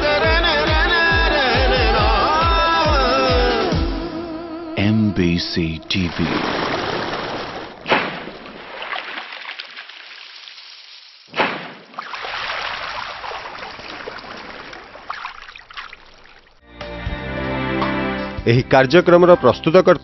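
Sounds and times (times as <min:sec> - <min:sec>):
liquid rushing: 0:06.0 - 0:16.6
sudden splashes: 0:06.0 - 0:16.6.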